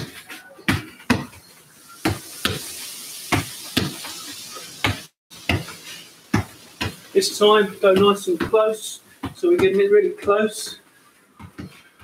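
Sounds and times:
foot kicking football: 0:04.8 - 0:07.0, 0:07.8 - 0:10.4.

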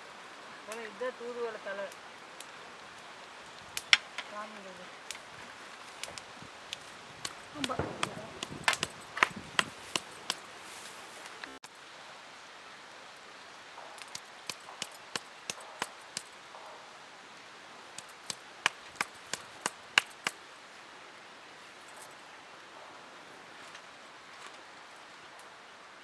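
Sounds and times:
stone pounding leaves on rock: 0:03.8 - 0:11.0, 0:13.8 - 0:16.7, 0:18.0 - 0:20.4.

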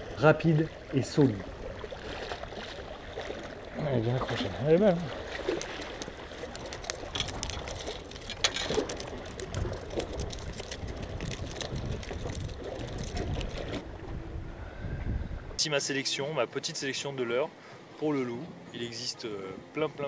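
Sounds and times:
sea water splashing on rocks: 0:00.7 - 0:13.8.

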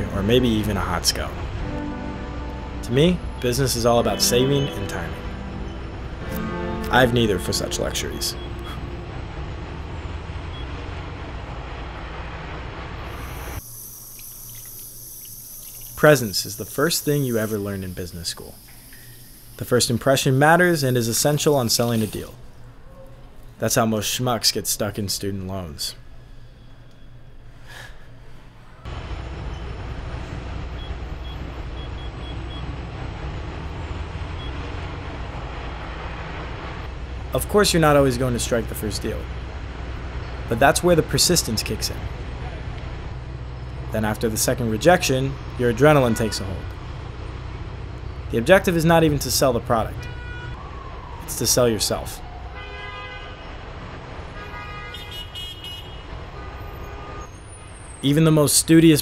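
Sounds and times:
long vehicle horn tone: 0:00.0 - 0:11.2, 0:45.7 - 0:46.7, 0:49.9 - 0:50.6, 0:52.6 - 0:53.6, 0:54.3 - 0:57.6
road traffic hum: 0:00.0 - 0:59.0
rumble of passing cars: 0:00.0 - 0:59.0.

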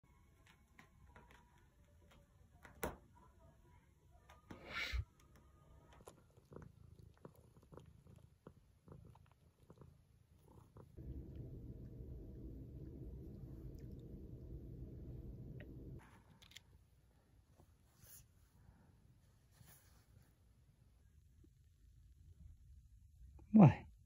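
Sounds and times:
cat purring: 0:04.2 - 0:16.6
steady low rumble: 0:11.0 - 0:16.0.

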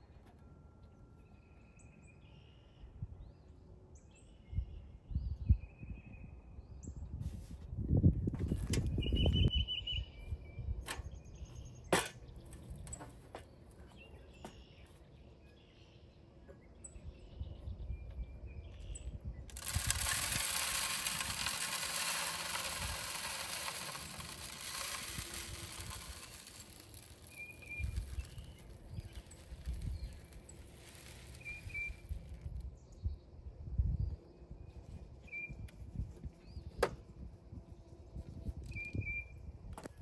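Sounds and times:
birds chirping: 0:08.9 - 0:20.0, 0:22.6 - 0:33.5
birdseed pouring: 0:19.5 - 0:32.6.

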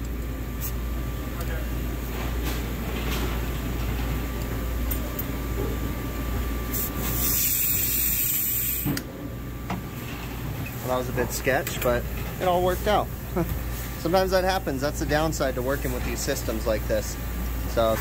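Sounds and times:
gas hissing from pipe: 0:06.7 - 0:09.0.

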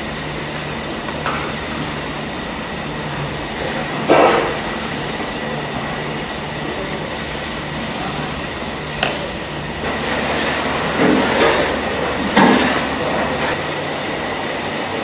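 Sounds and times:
busy kitchen rumble: 0:00.0 - 0:15.0
ladle stirring steel pot: 0:09.8 - 0:13.6.

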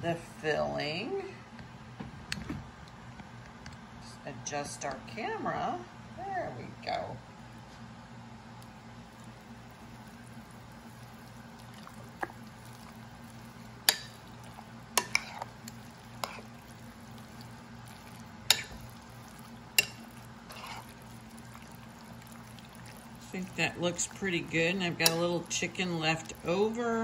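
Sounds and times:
spoon stirring thick filling: 0:09.0 - 0:27.0.

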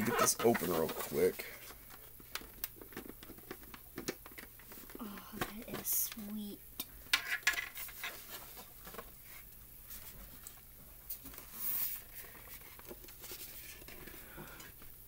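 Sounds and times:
plastic shell scraping: 0:00.0 - 0:06.3.

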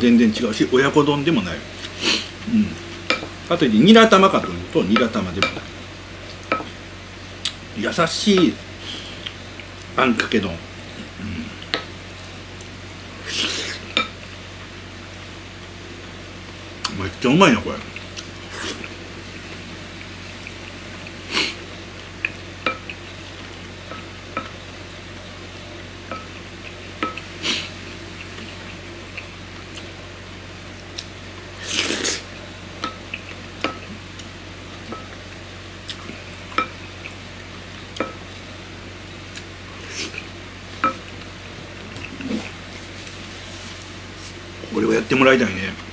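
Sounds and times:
low steady hum: 0:00.0 - 0:45.9
slurps: 0:31.6 - 0:32.3.

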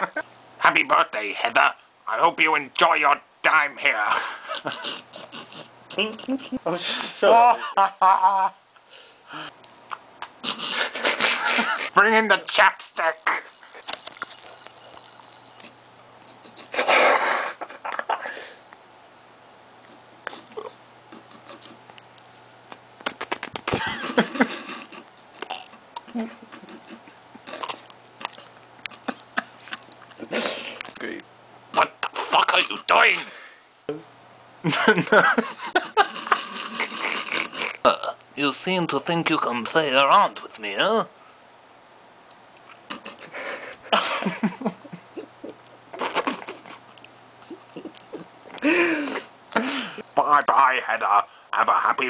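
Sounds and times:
person making mouth noises: 0:04.6 - 0:06.5, 0:09.4 - 0:11.9, 0:13.2 - 0:18.2, 0:19.8 - 0:22.1, 0:22.7 - 0:31.0, 0:31.8 - 0:32.9, 0:36.0 - 0:38.2, 0:42.6 - 0:43.4, 0:45.0 - 0:49.3
lip smacks and clicks: 0:09.6 - 0:10.7, 0:13.8 - 0:16.7, 0:19.8 - 0:23.8, 0:24.8 - 0:30.2, 0:45.4 - 0:48.6
breathy burst: 0:33.2 - 0:33.7, 0:48.6 - 0:50.1.

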